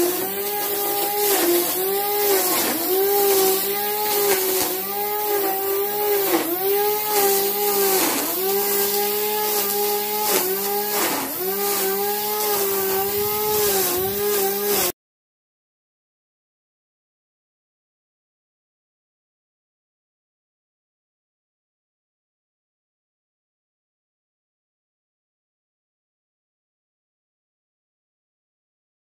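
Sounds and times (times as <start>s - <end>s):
string trimmer cutting grass: 0.0s - 15.0s.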